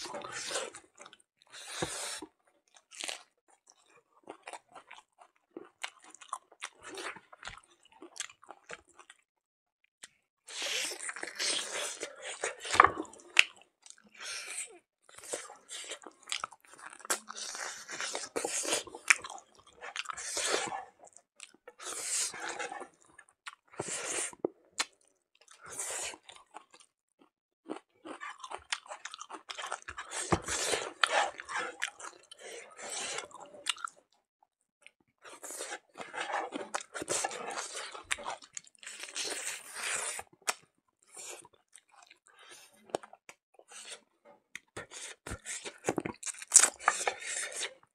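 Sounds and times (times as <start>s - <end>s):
person chewing with crunches: 10.0s - 34.1s, 35.2s - 47.9s.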